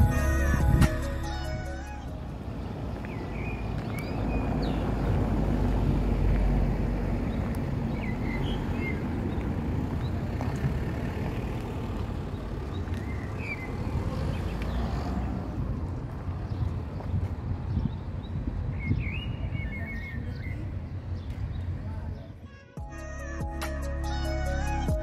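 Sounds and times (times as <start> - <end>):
vehicle passing: 0.0 - 17.6.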